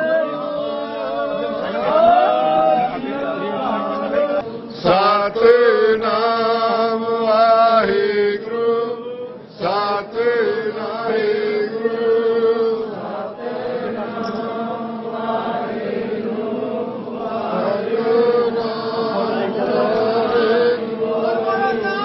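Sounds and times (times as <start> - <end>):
devotional hymn chanting: 0.0 - 22.0.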